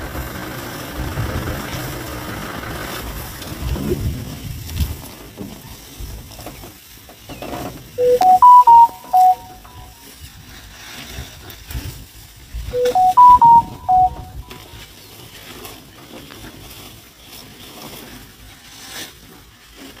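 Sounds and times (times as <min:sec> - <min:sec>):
short tune of clear tones: 0:08.0 - 0:10.0, 0:12.8 - 0:14.6.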